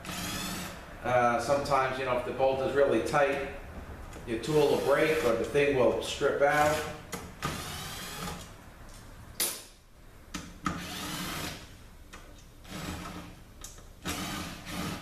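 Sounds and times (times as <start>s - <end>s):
power driver whirring: 0.0s - 0.8s, 6.7s - 8.5s, 10.7s - 11.6s.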